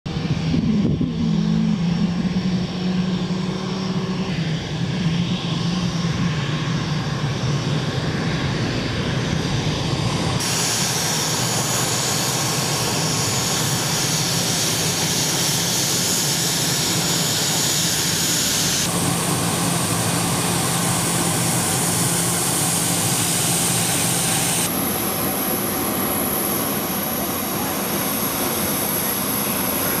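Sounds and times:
high whistling jet whine: 0:00.1 - 0:30.0
jet engines rushing: 0:00.1 - 0:30.0.

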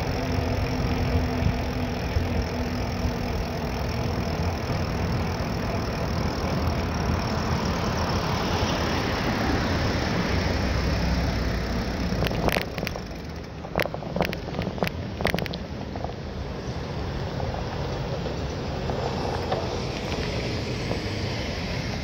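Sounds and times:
sharp clicks and rattles: 0:00.0 - 0:08.8, 0:11.2 - 0:16.2
bicycle rolling noise: 0:00.0 - 0:22.0.

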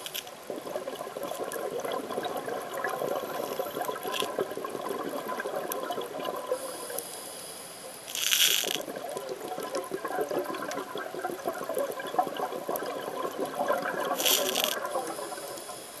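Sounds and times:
underwater crackle and bubbling: 0:00.0 - 0:16.0
scuba regulator breaths hissing: 0:06.6 - 0:08.8, 0:14.2 - 0:16.0.

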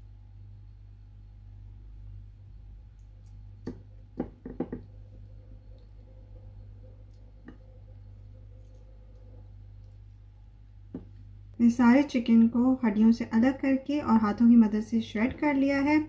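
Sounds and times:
low hum: 0:00.0 - 0:16.0
bones tapping on ceramic plate: 0:03.6 - 0:04.9.

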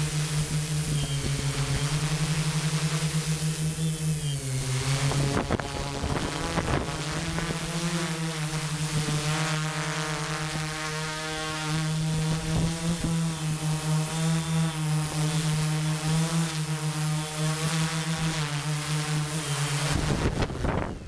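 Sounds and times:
drone motors and propellers humming: 0:00.0 - 0:21.0.

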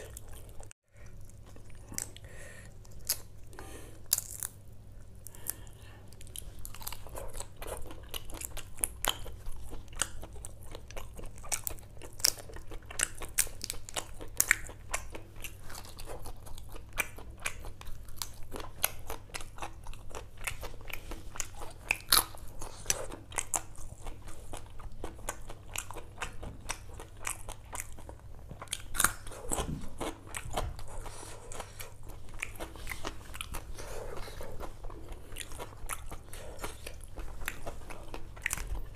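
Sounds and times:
person chewing and biting: 0:00.0 - 0:38.9.

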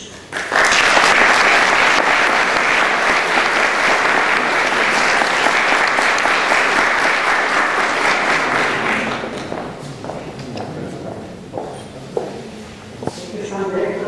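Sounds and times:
audience clapping: 0:00.2 - 0:10.6.

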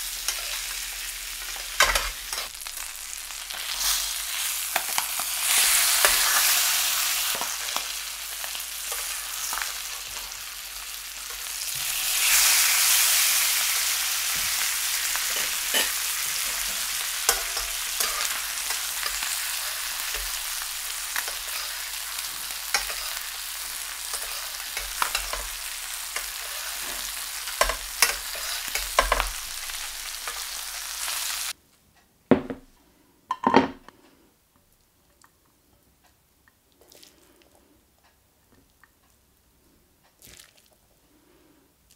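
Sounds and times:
fish sizzling in a frying pan: 0:00.0 - 0:31.6
plate knocking on wooden table: 0:32.3 - 0:32.7, 0:33.3 - 0:33.8.

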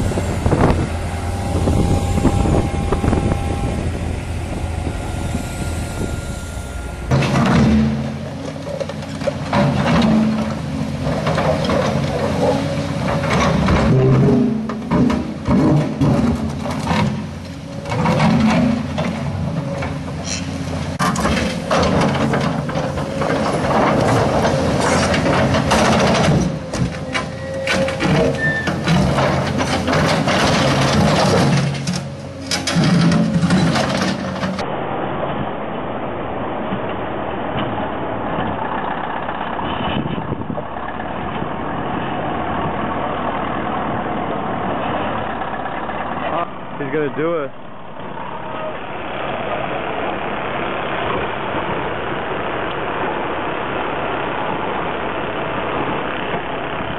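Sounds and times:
diesel engine under load: 0:00.0 - 0:56.9
clanks and knocks of machine and rock: 0:07.1 - 0:34.6.

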